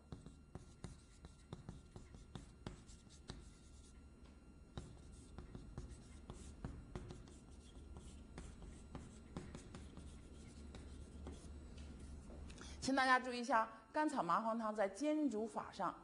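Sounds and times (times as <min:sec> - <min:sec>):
chalk tapping and scratching: 0:00.0 - 0:04.1, 0:04.7 - 0:12.8.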